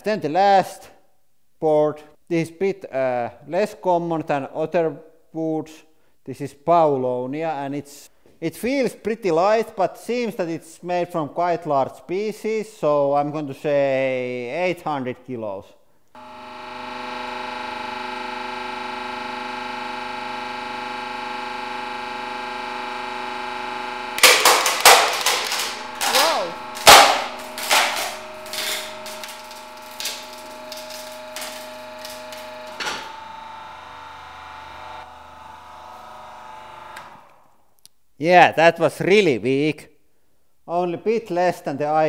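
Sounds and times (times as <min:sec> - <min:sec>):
hydraulic pump whining: 0:16.2 - 0:37.6
wood board cracking: 0:24.2 - 0:33.2.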